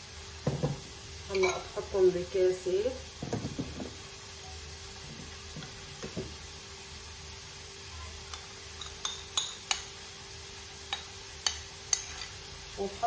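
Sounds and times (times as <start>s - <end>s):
faint steady hum: 0.0s - 13.0s
metal spoon clinking on ceramic: 8.8s - 9.8s.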